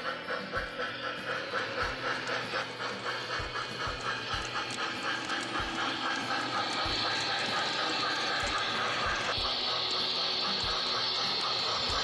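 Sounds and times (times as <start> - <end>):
model steam locomotive chuffing: 0.0 - 12.0
steam hiss: 0.0 - 12.0.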